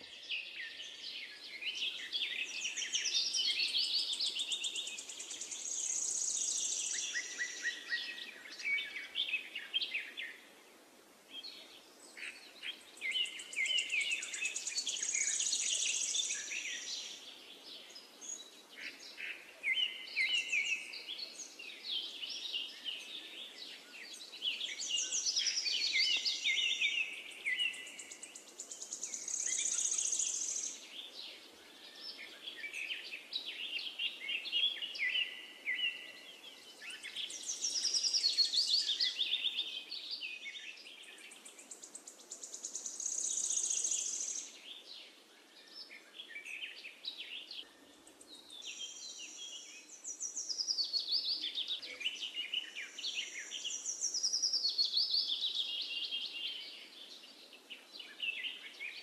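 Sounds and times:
birds chirping and trilling: 0.0 - 10.6, 11.3 - 59.0.

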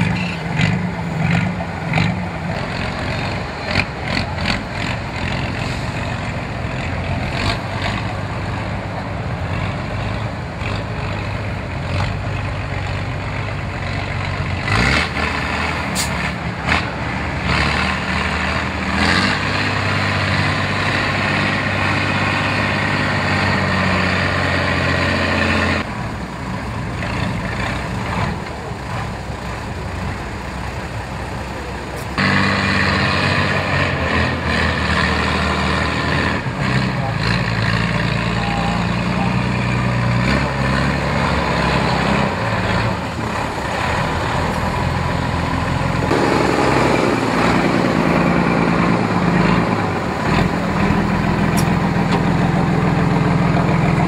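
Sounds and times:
diesel engine revving: 0.0 - 54.0
truck knocks and clunks: 39.5 - 54.0.

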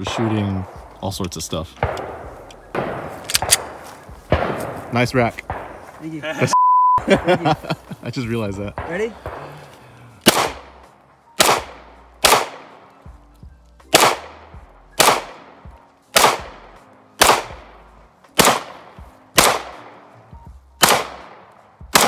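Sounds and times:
handgun shots echoing: 1.8 - 5.9, 8.8 - 10.8, 11.4 - 12.9, 13.9 - 17.8, 18.4 - 20.1, 20.8 - 22.0.

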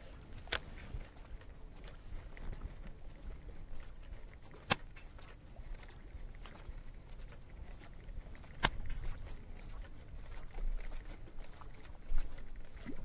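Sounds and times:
boat engine rumble: 0.0 - 13.0.

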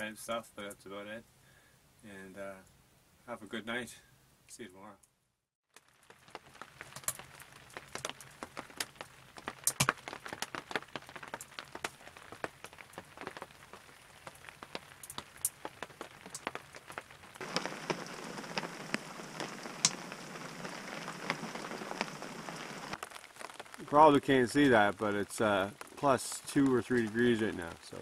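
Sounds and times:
raindrops tapping: 5.7 - 28.0
rainfall hiss: 5.8 - 28.0
drips: 11.2 - 28.0.

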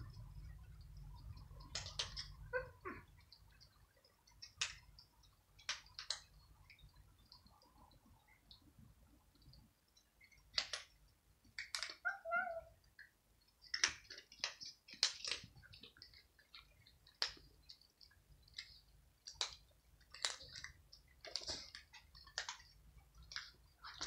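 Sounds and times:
cats crunching dry kibble: 13.6 - 24.0.

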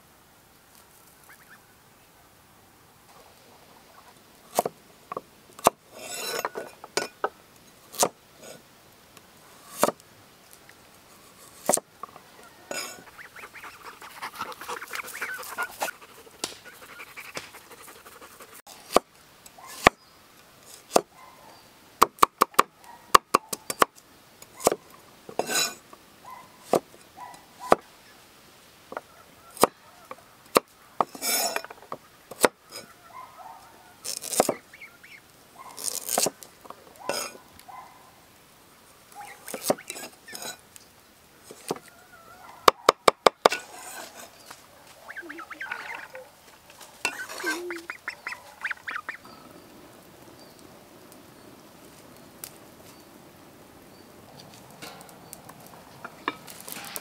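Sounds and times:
geese calling: 1.2 - 1.8, 12.0 - 18.6, 32.0 - 35.8, 43.7 - 49.7.

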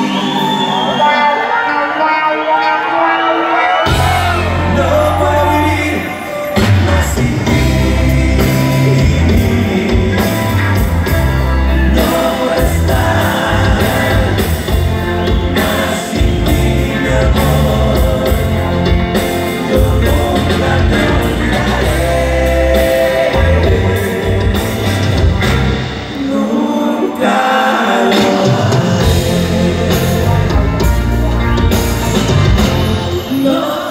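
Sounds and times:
drums: 0.0 - 1.3, 3.3 - 33.9
person singing: 0.0 - 31.2, 32.4 - 33.9
electric guitar: 0.0 - 33.9
bass guitar: 3.7 - 26.6, 28.1 - 33.6.

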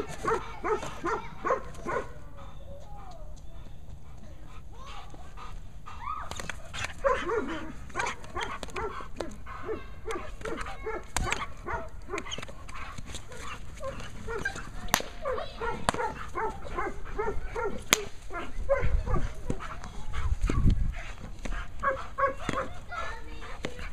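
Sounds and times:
dog barking rapidly: 0.2 - 2.1, 7.0 - 9.0, 9.6 - 12.4, 15.2 - 19.3, 21.8 - 23.2.

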